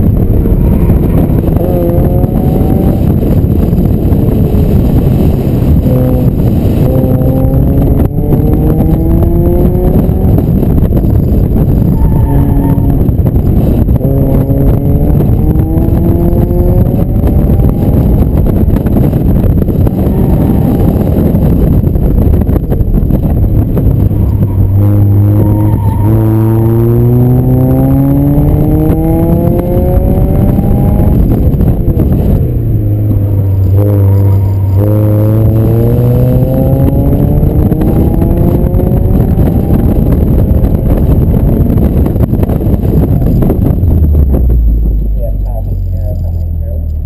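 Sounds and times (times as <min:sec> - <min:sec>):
car engine revving: 0:00.0 - 0:47.0
road noise: 0:00.0 - 0:47.0.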